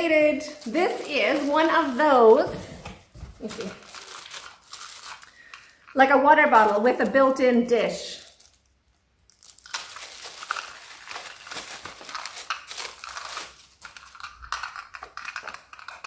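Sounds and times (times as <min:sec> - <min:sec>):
plastic bag crinkling: 0:00.1 - 0:07.4, 0:08.0 - 0:16.0.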